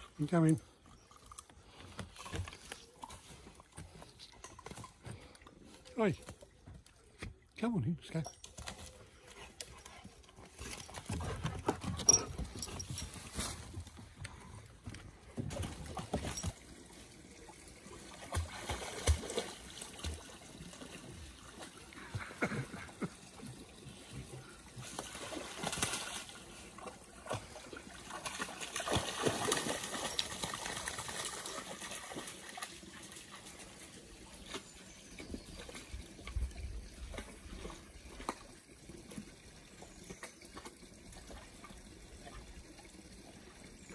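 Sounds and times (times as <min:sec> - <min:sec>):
water splashing around dog: 0:08.4 - 0:43.0.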